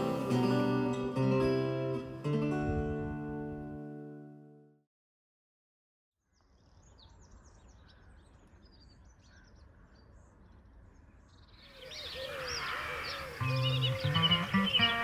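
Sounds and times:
small birds chirping: 0:06.2 - 0:15.0.

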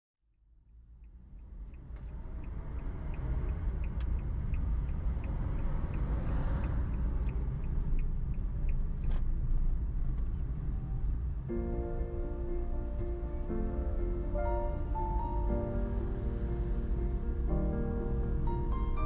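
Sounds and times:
road noise: 0:00.5 - 0:19.0
car engine rumble: 0:00.6 - 0:19.0
turn signal clicking: 0:01.0 - 0:11.3.

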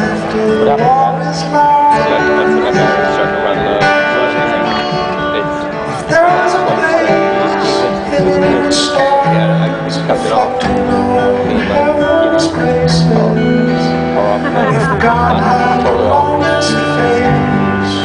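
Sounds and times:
acoustic guitar duet: 0:00.0 - 0:18.0.

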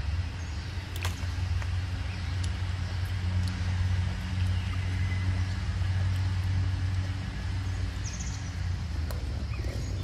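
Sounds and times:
low engine hum: 0:00.0 - 0:10.0.

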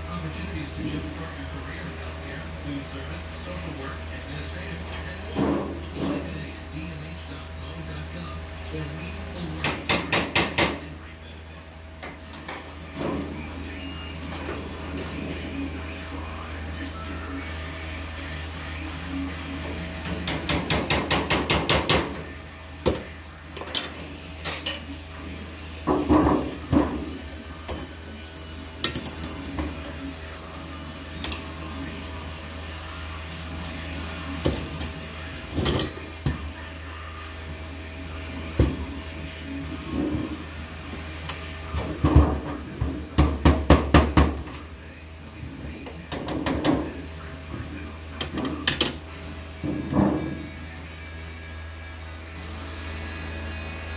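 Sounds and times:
steady low hum: 0:00.0 - 0:53.9
hammer knocking on sheet metal: 0:20.2 - 0:22.2, 0:43.2 - 0:44.4.

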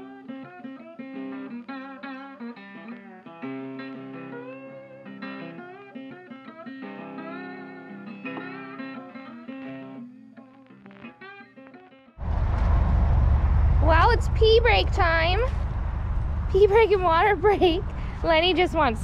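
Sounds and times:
guitar instrumental music: 0:00.0 - 0:12.2.

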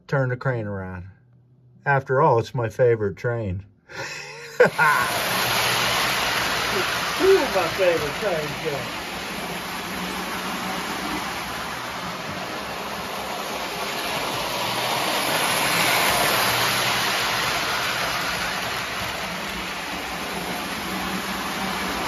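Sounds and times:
model train running on track: 0:04.6 - 0:22.0.

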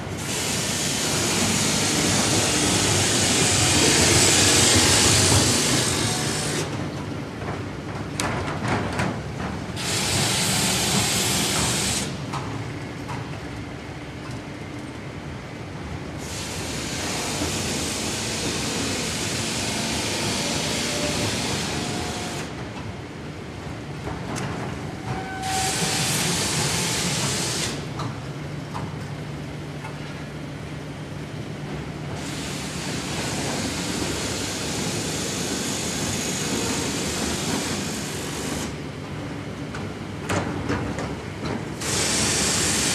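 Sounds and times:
loud machine hiss: 0:00.0 - 0:06.8, 0:09.8 - 0:12.2, 0:16.2 - 0:22.5, 0:25.2 - 0:27.9, 0:32.2 - 0:38.8, 0:41.8 - 0:42.9.

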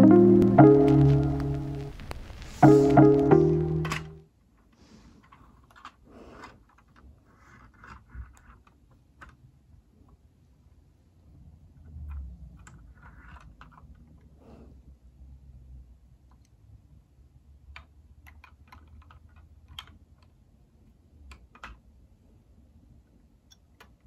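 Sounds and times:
plastic toy pieces clicking: 0:05.2 - 0:09.5, 0:11.9 - 0:14.3, 0:17.7 - 0:20.4, 0:21.2 - 0:21.9.

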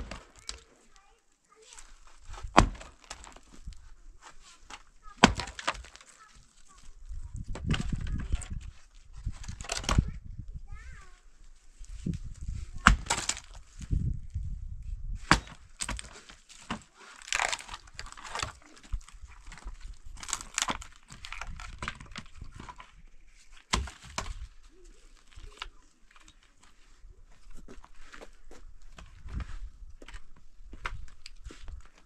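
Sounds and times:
axe chopping wood: 0:00.0 - 0:00.6, 0:02.3 - 0:03.6, 0:04.7 - 0:06.2, 0:07.4 - 0:08.0, 0:12.7 - 0:13.6, 0:15.2 - 0:18.9, 0:23.7 - 0:24.5
wood splintering and cracking: 0:00.0 - 0:00.8, 0:01.7 - 0:10.1, 0:12.7 - 0:13.8, 0:15.2 - 0:26.6.

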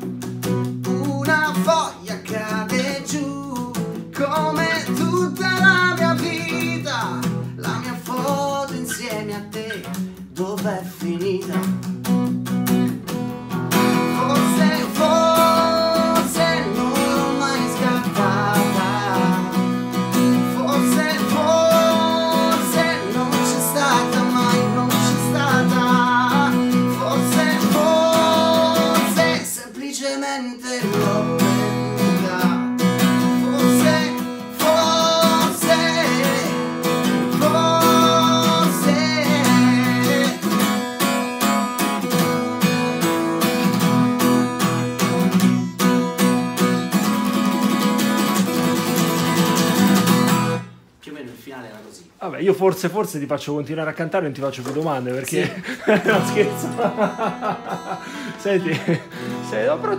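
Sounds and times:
acoustic guitar strumming chords: 0:00.0 - 0:50.9, 0:55.5 - 0:59.9
man singing: 0:00.8 - 0:11.9, 0:13.5 - 0:40.9, 0:55.4 - 0:59.9.

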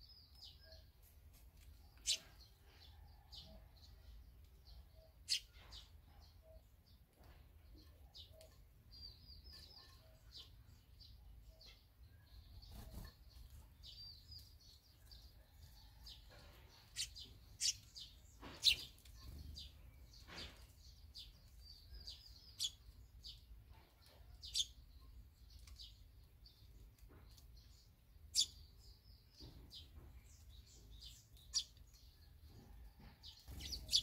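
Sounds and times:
swallows twittering: 0:17.0 - 0:20.6, 0:33.5 - 0:34.0.

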